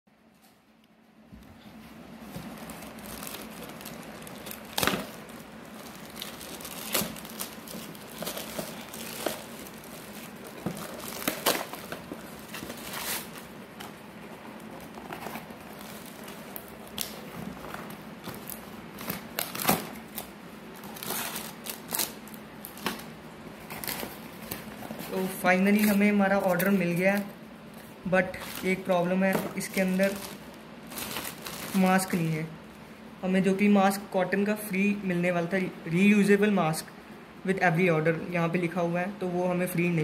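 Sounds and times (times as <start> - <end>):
plastic mailer bag crinkling: 2.2 - 32.5.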